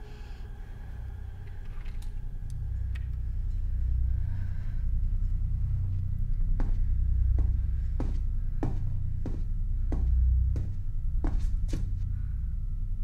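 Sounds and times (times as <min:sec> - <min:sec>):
low rumbling drone: 0:00.0 - 0:13.0
slow pulsing beat: 0:05.6 - 0:12.0.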